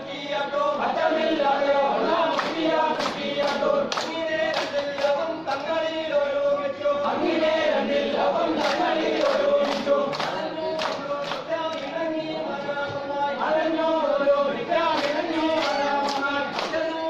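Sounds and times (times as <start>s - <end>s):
men singing in unison: 0.0s - 17.0s
sharp hand claps: 2.3s - 5.7s, 8.6s - 12.0s, 14.9s - 17.0s.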